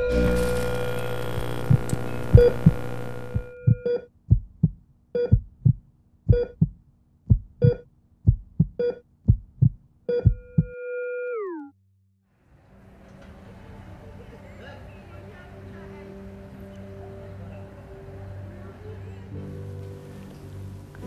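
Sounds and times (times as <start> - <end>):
synthesized heartbeat thumps: 1.1 - 10.8
electronic heart monitor beeps: 1.3 - 4.1, 5.2 - 6.7, 7.6 - 7.8, 8.6 - 9.0, 10.1 - 11.6.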